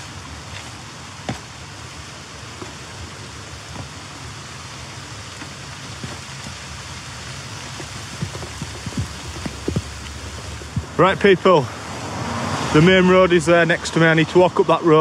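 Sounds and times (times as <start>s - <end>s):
footsteps on wooden stile: 0.0s - 1.6s, 2.5s - 4.1s, 5.3s - 6.8s, 7.6s - 11.0s
rain pattering on leaves: 0.0s - 15.0s.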